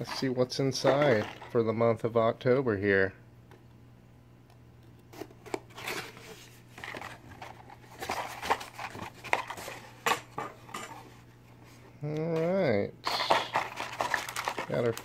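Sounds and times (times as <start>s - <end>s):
items shifting in box: 0.0s - 1.6s, 5.5s - 11.0s, 13.2s - 15.0s.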